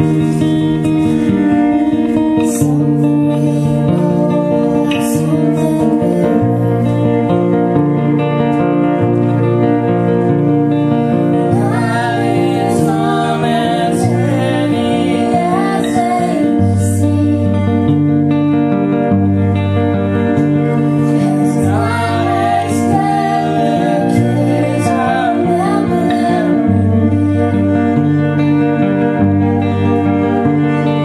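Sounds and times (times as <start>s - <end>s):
person singing with vibrato: 0.0s - 7.8s, 11.1s - 17.9s, 20.6s - 27.9s
plucked guitar: 0.0s - 31.0s.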